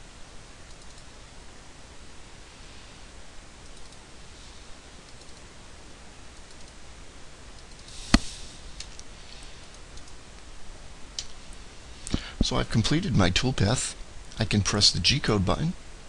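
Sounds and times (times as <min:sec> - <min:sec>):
faint steady hiss: 0:00.0 - 0:16.0
computer mouse clicks: 0:00.6 - 0:01.1, 0:03.6 - 0:04.0, 0:05.1 - 0:05.4, 0:06.4 - 0:06.8.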